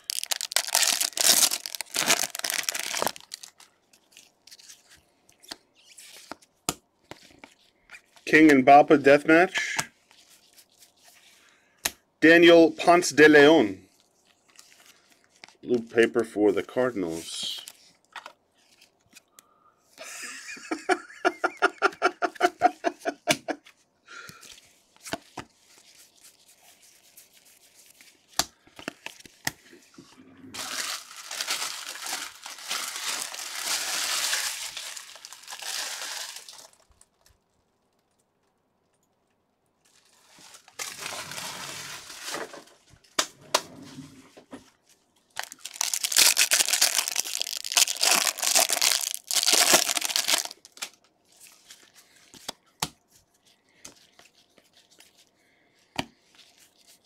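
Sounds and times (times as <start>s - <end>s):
plastic wrapper crinkling and tearing: 0.0s - 8.3s, 30.5s - 38.6s, 39.8s - 42.8s, 45.3s - 51.9s.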